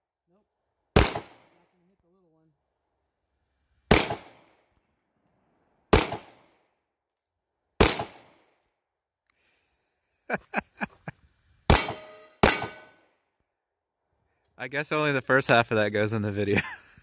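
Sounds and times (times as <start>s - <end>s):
pistol shots: 1.0s - 1.8s, 3.9s - 4.7s, 5.9s - 6.7s, 7.8s - 8.6s, 11.7s - 13.0s.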